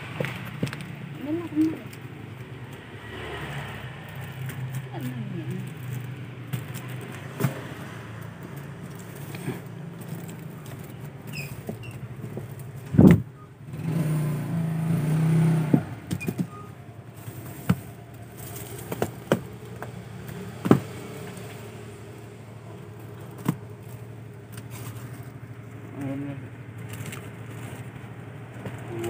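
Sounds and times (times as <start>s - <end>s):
plastic-wrapped packs handled: 4.0s - 13.0s, 16.2s - 25.9s, 26.6s - 29.0s.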